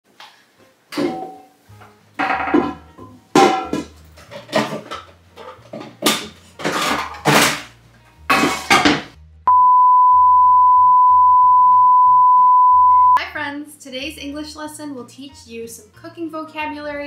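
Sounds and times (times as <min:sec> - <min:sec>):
kitchenware clattering crashes: 0:01.0 - 0:01.5, 0:02.2 - 0:07.7, 0:08.3 - 0:09.2
high test beep tone: 0:09.5 - 0:13.2.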